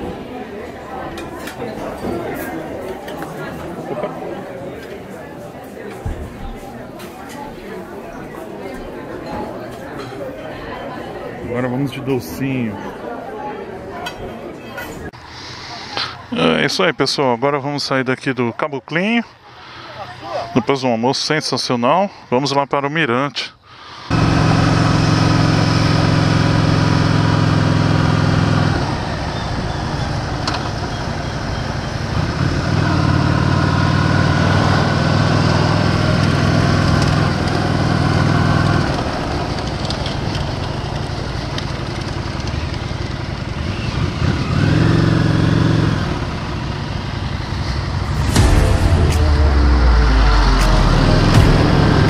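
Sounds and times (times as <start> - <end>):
motorcycle engine running: 24.1 - 52.0.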